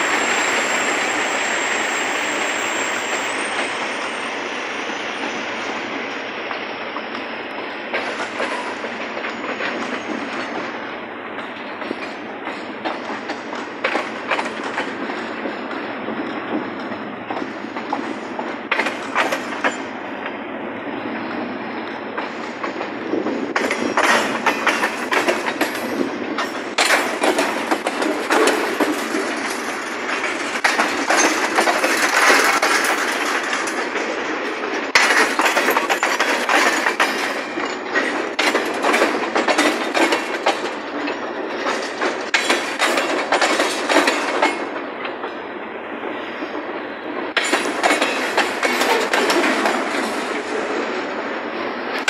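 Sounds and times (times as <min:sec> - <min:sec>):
train wheels clacking: 0:00.0 - 0:20.4, 0:21.1 - 0:52.0
freight train rumble: 0:00.0 - 0:52.0.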